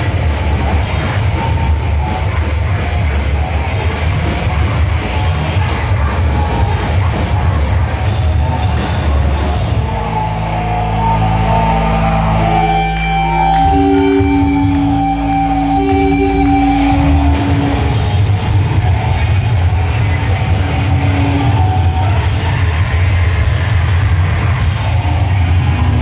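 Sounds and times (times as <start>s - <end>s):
drum kit with cymbals: 0.0s - 10.0s, 15.8s - 26.0s
bass guitar: 0.0s - 26.0s
distorted electric guitar: 0.0s - 26.0s.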